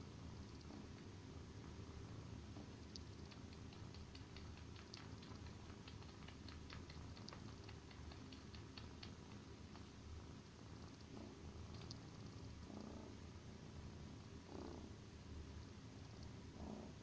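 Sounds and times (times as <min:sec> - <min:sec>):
low purr: 0:00.5 - 0:01.0, 0:02.5 - 0:10.0, 0:10.7 - 0:15.0, 0:16.2 - 0:17.0
kitten sucking clicks: 0:02.7 - 0:10.2, 0:10.8 - 0:12.6.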